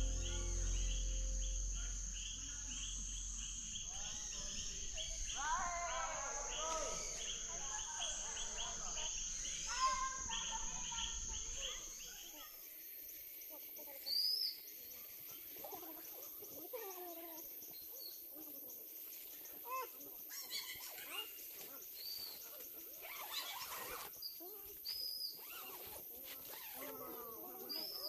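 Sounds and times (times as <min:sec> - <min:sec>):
insects buzzing: 0:00.0 - 0:13.9, 0:14.7 - 0:28.0
bird calls and chirps: 0:26.6 - 0:28.0.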